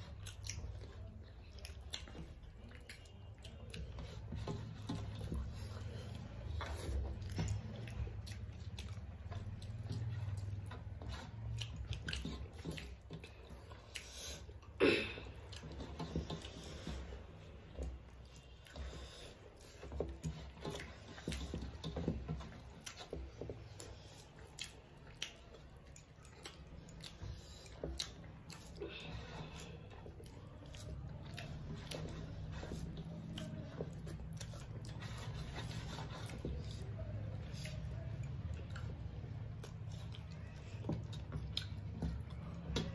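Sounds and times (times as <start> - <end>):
wet chewing and mouth smacks: 0.0 - 42.9
fingers mixing rice on metal plate: 15.4 - 42.9.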